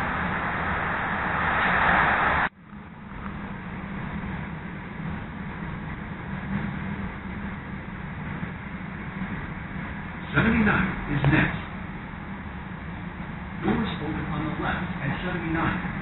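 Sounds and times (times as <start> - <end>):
loud rushing noise: 0.0 - 2.5
train wheels rumbling on rail: 0.0 - 16.0.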